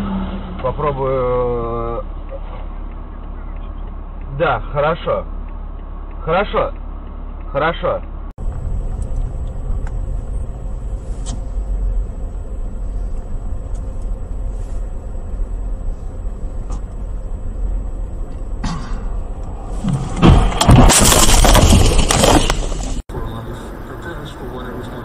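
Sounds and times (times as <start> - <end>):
car driving rumble: 0.0 - 25.0
car collision crash: 18.6 - 23.0
loud clattering: 19.8 - 23.0.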